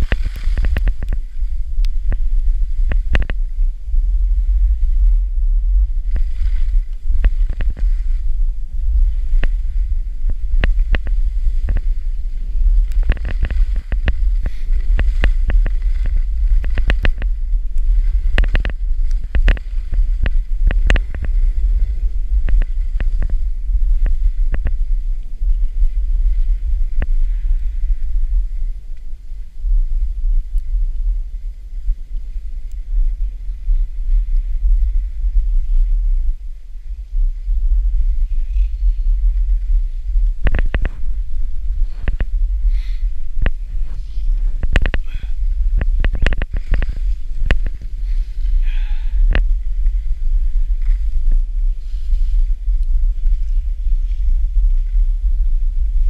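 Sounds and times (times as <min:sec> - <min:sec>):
skis scraping on snow: 0:00.0 - 0:03.1, 0:05.7 - 0:28.7, 0:38.0 - 0:56.0
wind buffeting microphone: 0:00.0 - 0:56.0.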